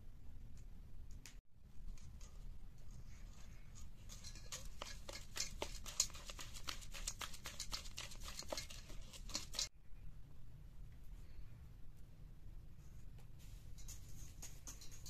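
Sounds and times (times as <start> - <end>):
whisk beating eggs in metal bowl: 2.0 - 9.7, 13.8 - 15.0.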